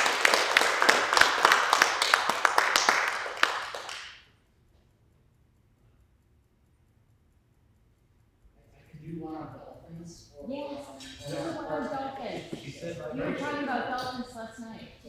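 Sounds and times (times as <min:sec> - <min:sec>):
audience applauding: 0:00.0 - 0:04.2.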